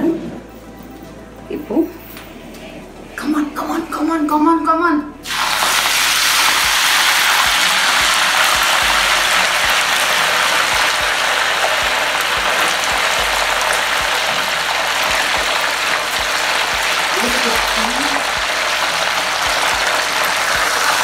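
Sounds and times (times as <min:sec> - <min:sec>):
leaves sizzling in hot oil: 0:05.2 - 0:21.0.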